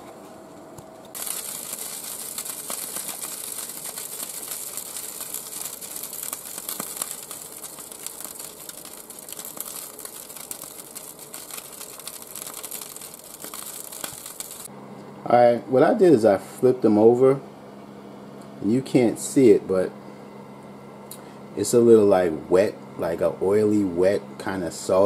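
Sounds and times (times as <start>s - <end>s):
hot oil sizzling on chicken: 1.2s - 14.7s.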